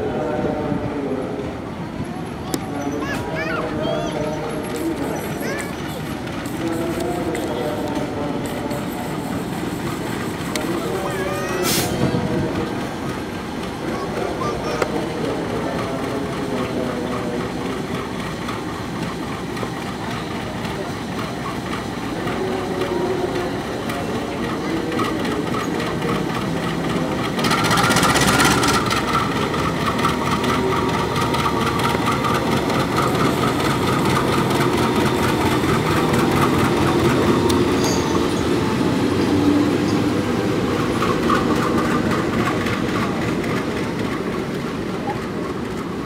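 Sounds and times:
diesel locomotive engine running: 0:00.0 - 0:46.0.

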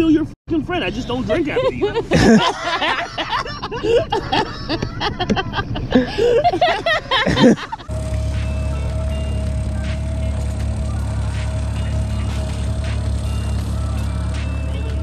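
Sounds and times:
people laughing and chattering: 0:01.0 - 0:15.0
background music: 0:07.3 - 0:15.0.

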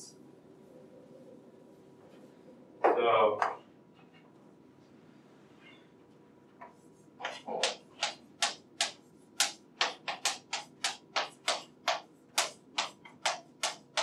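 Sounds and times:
chalk writing on blackboard: 0:06.6 - 0:14.0.

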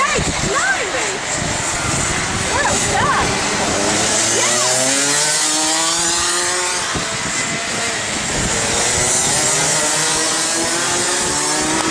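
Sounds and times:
go-kart engines running: 0:00.0 - 0:11.9.

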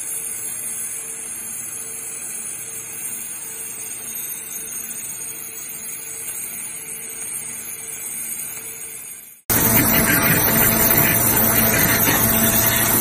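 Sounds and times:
faint pulsing hum: 0:09.5 - 0:13.0
waterjet cutting hiss: 0:09.5 - 0:13.0.

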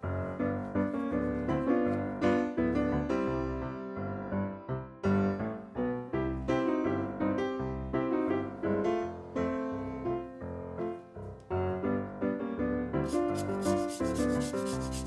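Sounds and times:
piano music: 0:00.0 - 0:15.0
lemon grated on metal grater: 0:13.1 - 0:15.0.

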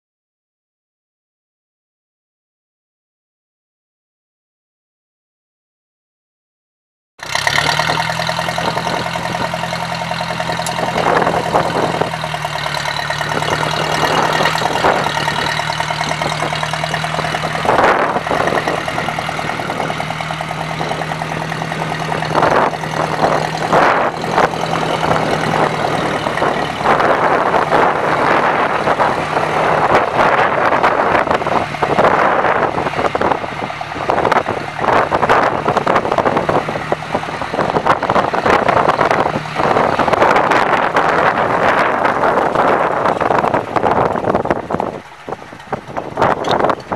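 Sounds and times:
tractor engine running: 0:07.2 - 0:46.9
wind-like rushing noise: 0:08.6 - 0:46.9.

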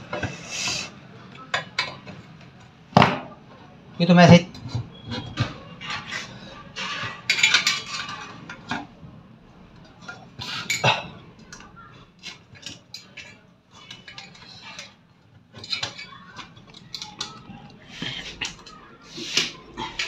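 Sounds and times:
sheet metal clinking and knocking: 0:04.5 - 0:09.0.

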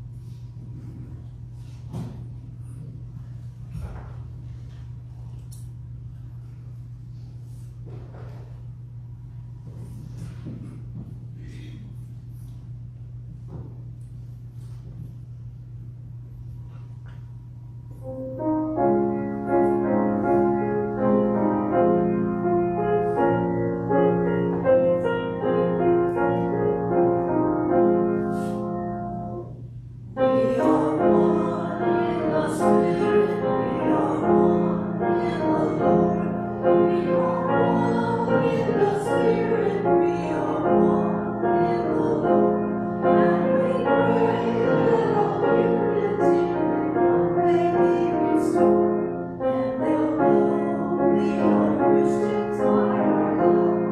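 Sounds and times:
piano notes ringing: 0:17.8 - 0:53.9
church choir singing: 0:18.0 - 0:29.5, 0:30.2 - 0:53.9.

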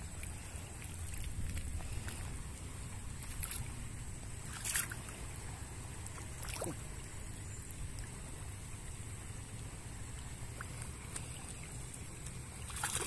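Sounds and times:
net drawn through water: 0:03.1 - 0:03.8, 0:12.6 - 0:13.0.

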